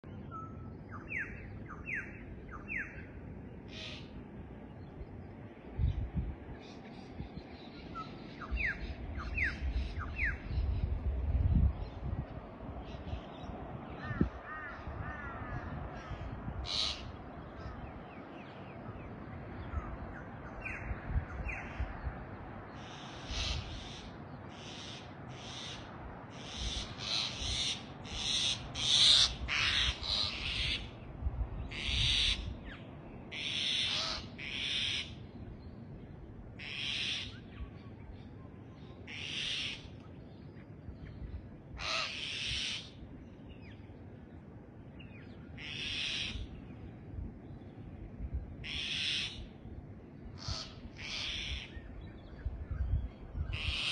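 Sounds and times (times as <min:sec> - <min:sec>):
birds screeching: 0:03.7 - 0:04.3, 0:12.8 - 0:35.4, 0:36.6 - 0:40.0, 0:41.7 - 0:43.8, 0:45.1 - 0:46.8, 0:48.6 - 0:49.5, 0:50.3 - 0:53.9.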